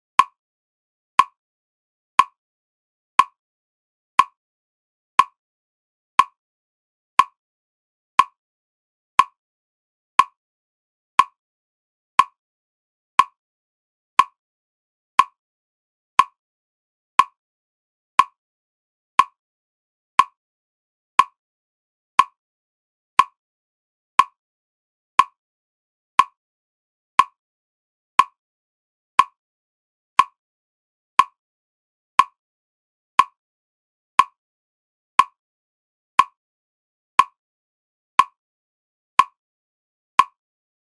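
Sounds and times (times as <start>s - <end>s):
sharp metronome-like tick: 7.2s - 7.4s, 9.2s - 9.4s, 10.2s - 10.4s, 11.2s - 11.4s, 12.2s - 12.4s, 13.2s - 13.4s, 14.2s - 14.4s, 15.2s - 15.4s, 16.2s - 16.4s, 17.2s - 17.4s, 18.2s - 18.4s, 19.2s - 19.4s, 20.2s - 20.4s, 21.2s - 21.4s, 22.2s - 22.4s, 23.2s - 23.4s, 24.2s - 24.4s, 25.2s - 25.4s, 26.2s - 26.4s, 27.2s - 27.4s, 28.2s - 28.4s, 29.2s - 29.4s, 30.2s - 30.4s, 31.2s - 31.4s, 32.2s - 32.4s, 33.2s - 33.4s, 34.2s - 34.4s, 35.2s - 35.4s, 36.2s - 36.4s, 37.2s - 37.4s, 38.2s - 38.4s, 39.2s - 39.4s, 40.2s - 40.4s.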